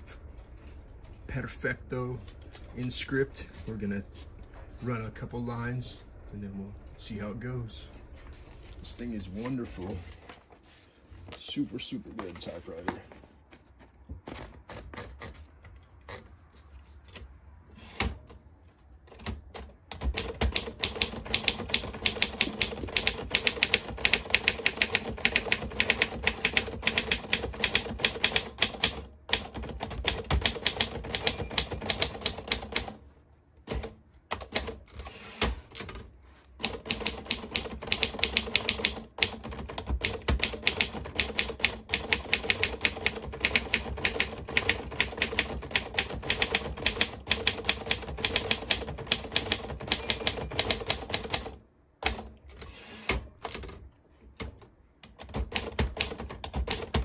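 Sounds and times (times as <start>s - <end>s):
typewriter key strikes: 20.0s - 32.9s, 36.6s - 52.2s.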